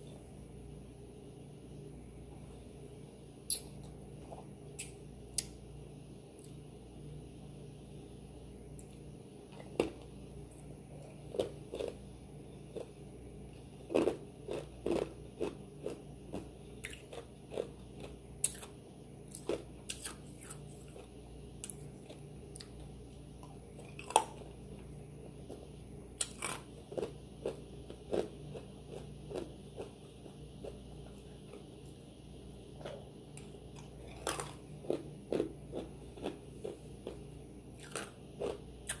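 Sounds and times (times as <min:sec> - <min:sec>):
person chewing food: 0:11.0 - 0:32.0, 0:32.7 - 0:39.0.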